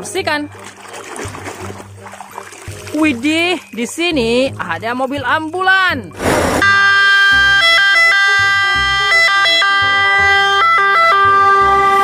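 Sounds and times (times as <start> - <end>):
short rush of noise: 6.2 - 6.6
ambulance siren: 6.6 - 12.0.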